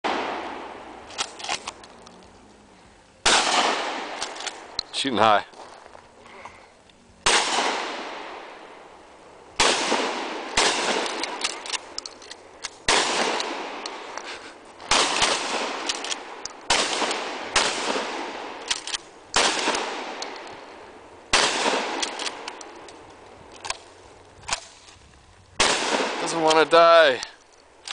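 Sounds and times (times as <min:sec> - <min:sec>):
gunshots with echo: 0:03.2 - 0:04.2, 0:07.3 - 0:08.5, 0:09.6 - 0:11.4, 0:12.9 - 0:14.1, 0:14.9 - 0:18.6, 0:19.4 - 0:20.2, 0:21.3 - 0:22.5.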